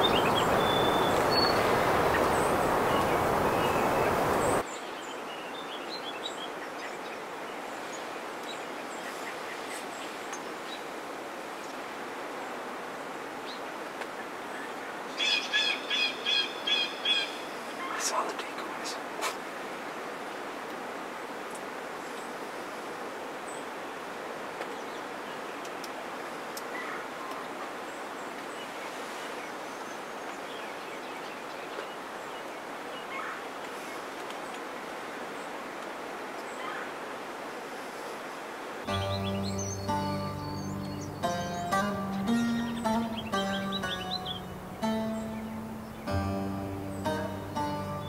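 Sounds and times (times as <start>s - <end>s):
faint bird chirps: 0.0s - 4.6s
outdoor background hiss: 0.0s - 48.0s.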